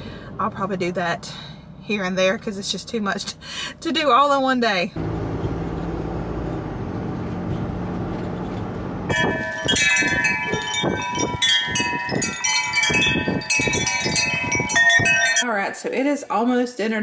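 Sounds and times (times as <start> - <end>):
road rumble inside vehicle: 0.0 - 15.4
tubular wind chimes ringing: 9.1 - 15.5.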